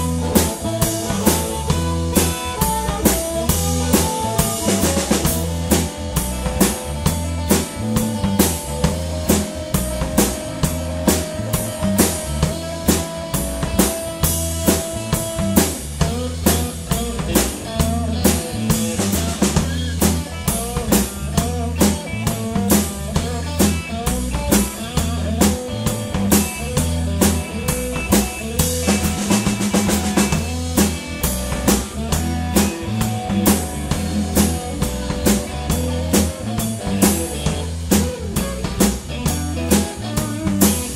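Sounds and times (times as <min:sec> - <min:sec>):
harmonica bending notes: 0:00.0 - 0:20.8
blues band playing: 0:00.0 - 0:40.9.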